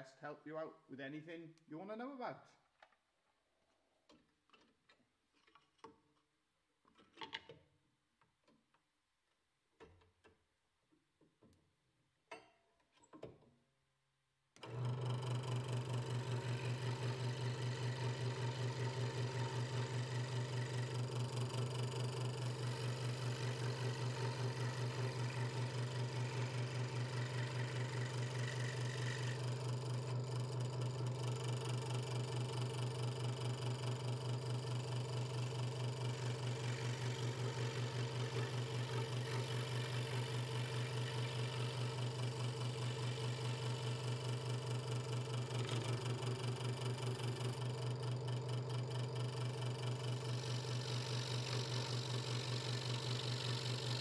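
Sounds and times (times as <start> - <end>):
scroll saw cutting wood: 16.0 - 31.3, 34.7 - 44.4, 48.8 - 54.0.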